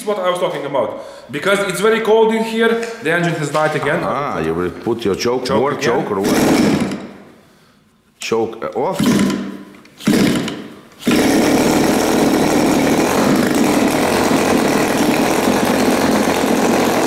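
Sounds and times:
model aircraft engine running: 11.0 - 17.0.

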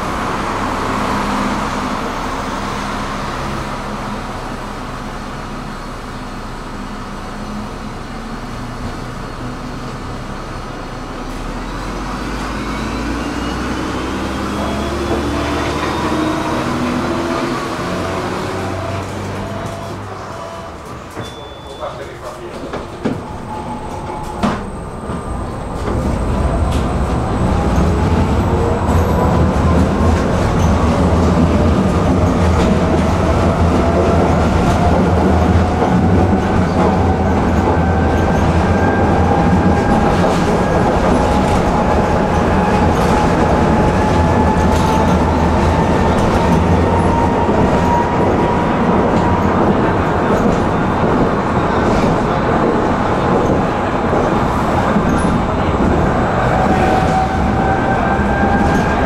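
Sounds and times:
tram motors whining: 0.1 - 21.4, 22.0 - 59.0
steel wheels rumbling on rails: 6.8 - 59.0.

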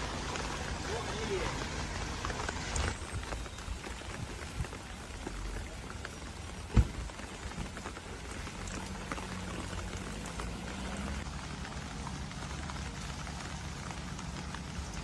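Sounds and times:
rain falling on water: 0.0 - 15.0
small drip ticks: 7.2 - 10.8.

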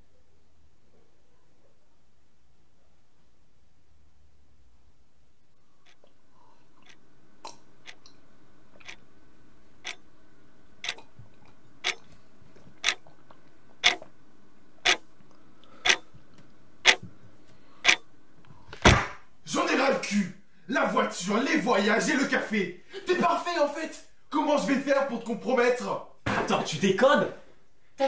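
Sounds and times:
faint steady hum: 0.0 - 28.0
clock ticking: 10.8 - 11.0, 13.8 - 14.0, 15.8 - 16.0, 16.8 - 17.0, 17.8 - 18.0.

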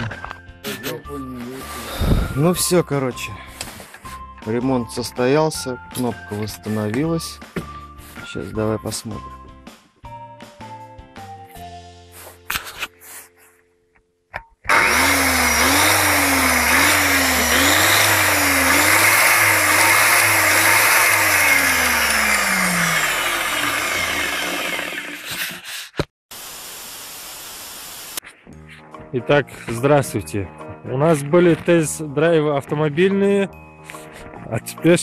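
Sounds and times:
angle grinder motor humming: 14.7 - 25.6
steady hiss: 26.3 - 28.2.

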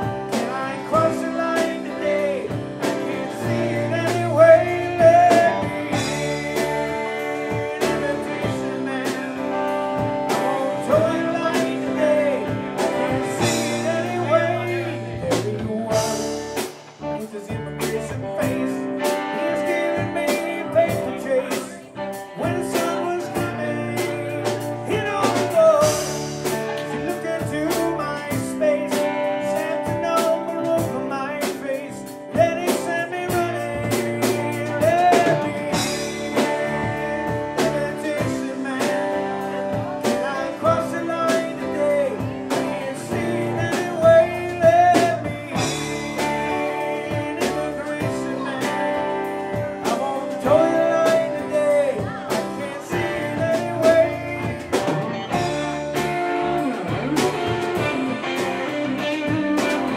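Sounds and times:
bass guitar: 0.0 - 59.9
drum kit: 0.0 - 59.9
electric guitar: 0.0 - 59.9
keyboard: 0.0 - 59.9.

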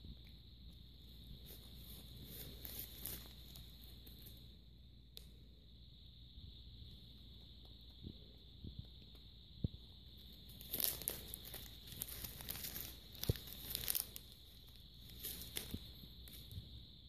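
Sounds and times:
plastic bag crinkling: 10.4 - 16.5.

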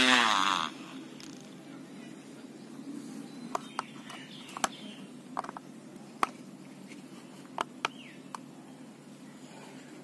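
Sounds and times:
steady low hum: 0.0 - 10.0
plastic clicks and knocks: 5.4 - 5.6.

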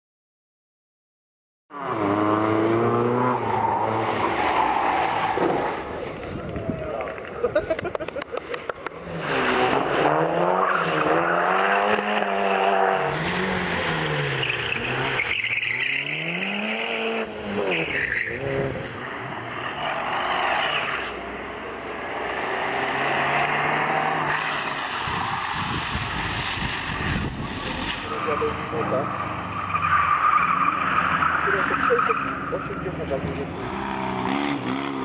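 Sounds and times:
rally car engines revving: 1.7 - 35.0
tyre squeal: 14.2 - 18.6.

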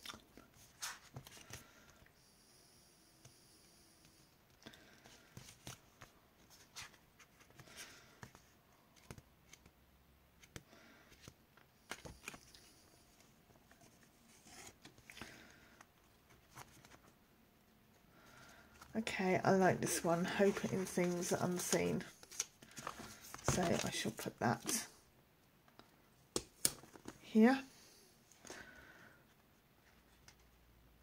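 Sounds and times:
paper sheets rustling: 19.9 - 24.8.

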